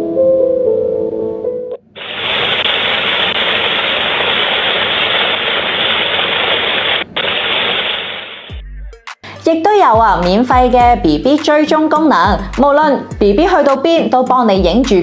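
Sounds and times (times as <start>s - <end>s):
piano lullaby: 0.0s - 1.8s
rain white noise hiss: 2.0s - 8.6s.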